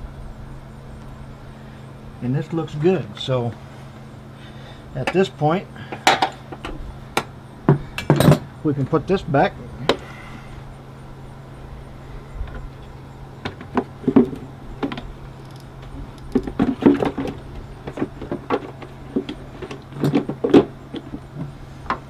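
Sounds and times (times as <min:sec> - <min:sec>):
steady low hum: 0:00.0 - 0:22.0
parts clicking and rattling: 0:12.4 - 0:22.0.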